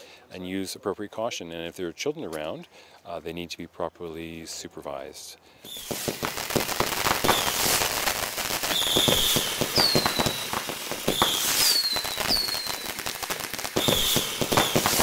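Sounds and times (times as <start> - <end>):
firework whistles: 5.6 - 15.0
fireworks popping and banging: 5.6 - 15.0.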